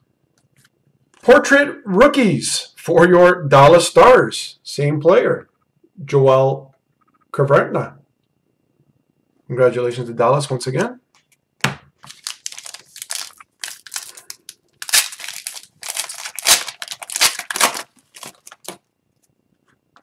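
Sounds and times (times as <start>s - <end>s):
card pack wrapper crinkling: 12.0s - 18.9s.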